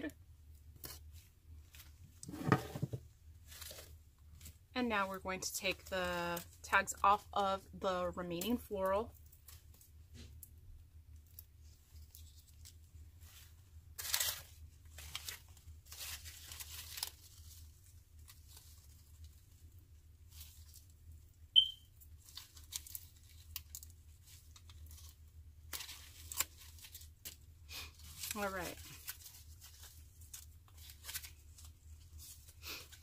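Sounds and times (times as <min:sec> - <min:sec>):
rustling of stems and foliage: 0:03.3 - 0:07.2, 0:11.2 - 0:21.1, 0:21.9 - 0:33.0
tags being torn off: 0:25.7 - 0:27.4.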